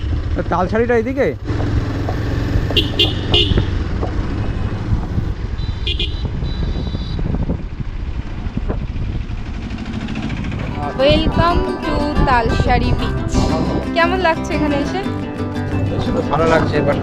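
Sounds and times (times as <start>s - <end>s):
motorcycle engine rumble: 0.0s - 17.0s
motorcycle horn toots: 2.6s - 3.8s, 5.5s - 7.4s.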